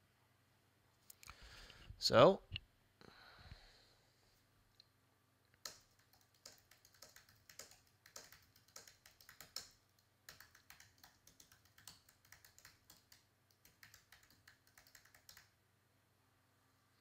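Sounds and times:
keyboard typing: 0:05.6 - 0:15.6.

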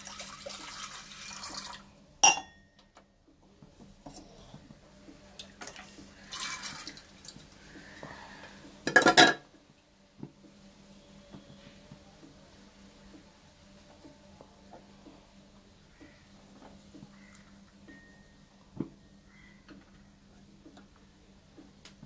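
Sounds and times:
water pouring into a pot: 0:00.0 - 0:02.0, 0:05.4 - 0:07.6.

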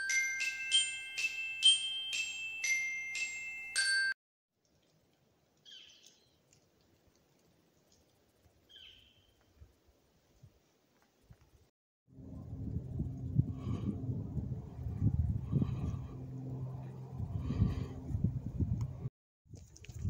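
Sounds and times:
chiming bell-like mallet jingle: 0:00.0 - 0:04.2.

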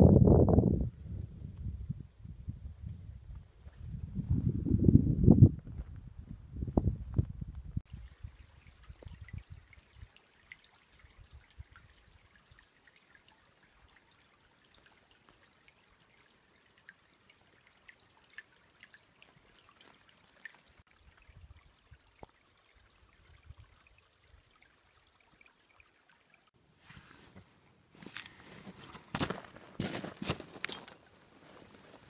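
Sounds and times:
wind gusts on microphone: 0:00.0 - 0:09.6
creek water trickling over stones: 0:07.8 - 0:32.0.

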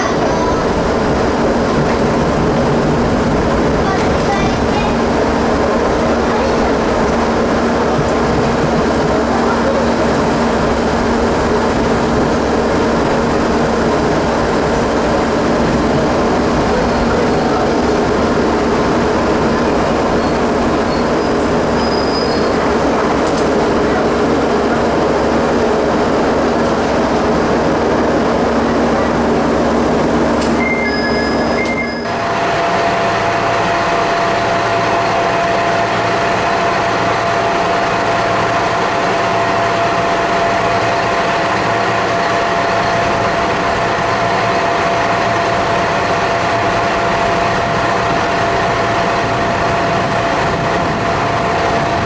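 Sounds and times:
diesel railcar engine hum: 0:00.0 - 0:52.0
railcar idling: 0:00.0 - 0:52.0
train rolling noise: 0:00.0 - 0:52.0
thin high squeals: 0:30.6 - 0:32.1.

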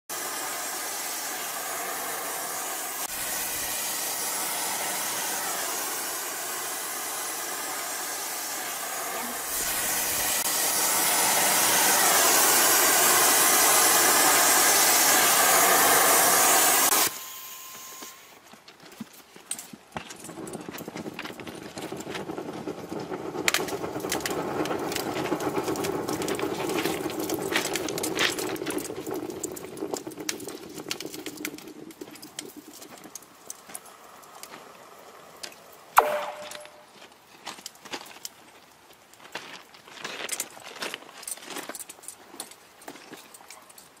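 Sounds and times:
welding hissing: 0:00.1 - 0:18.3, 0:22.8 - 0:36.9.

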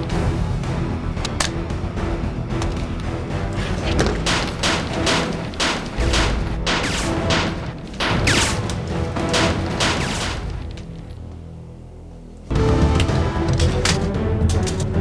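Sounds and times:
action soundtrack music: 0:00.0 - 0:15.0
sharp gunshots: 0:04.2 - 0:10.7.

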